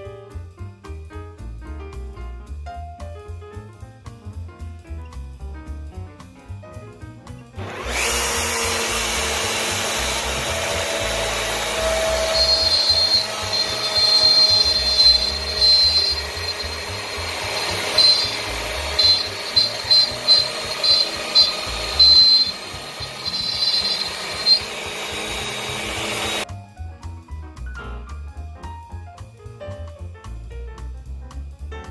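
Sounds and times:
shrill whine pulses: 5.0 - 9.1, 10.6 - 26.4
router spindle cutting wood: 7.6 - 26.4.

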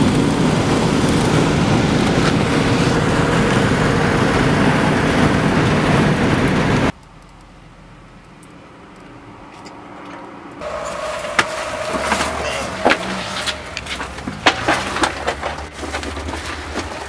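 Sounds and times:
motorhome engine idling: 0.0 - 6.9, 10.6 - 17.0
knocks bumps and rustles: 11.2 - 17.0.

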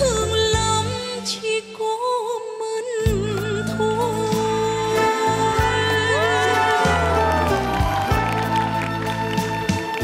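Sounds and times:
slow ballad music: 0.0 - 10.0.

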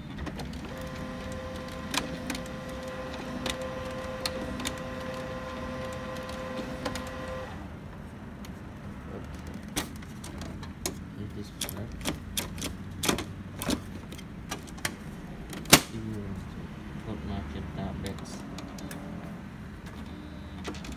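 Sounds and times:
printer motor whirring: 0.0 - 7.8
printer clicks: 0.1 - 7.6.

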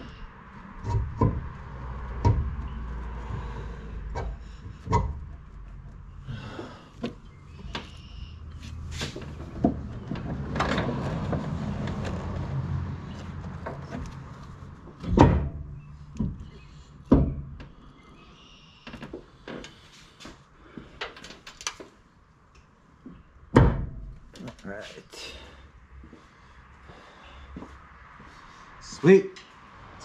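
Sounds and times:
metal knocks and taps: 0.8 - 2.8, 4.1 - 6.0
metal rubbing and scuffing: 7.8 - 10.0.

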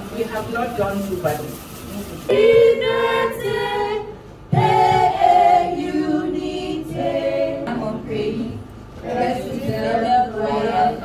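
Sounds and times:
group singing unaccompanied: 2.3 - 11.0.

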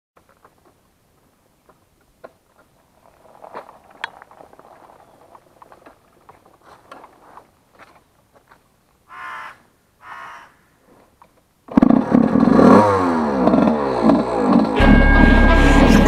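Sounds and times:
crow cawing: 9.1 - 10.8
motorbike engine accelerating: 11.7 - 16.0.

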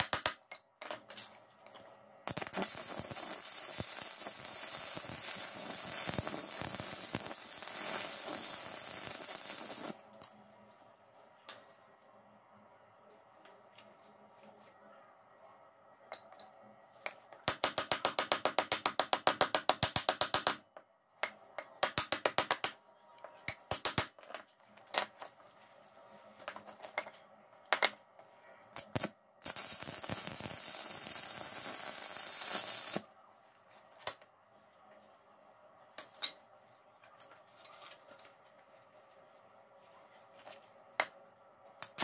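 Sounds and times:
steady hiss: 2.3 - 10.1, 28.8 - 33.1.

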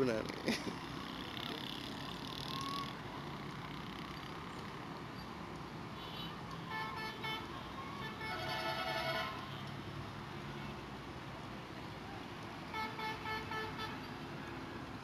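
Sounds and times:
train horn blasts: 8.0 - 9.6.

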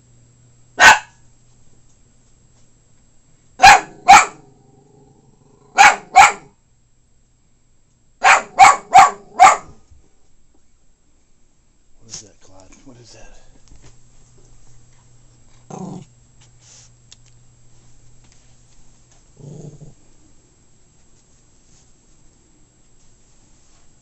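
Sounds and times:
small dog barking: 0.8 - 1.2, 3.6 - 4.6, 5.7 - 6.6, 8.2 - 9.8
dog growling: 3.8 - 5.8, 15.5 - 16.1, 19.4 - 20.1.

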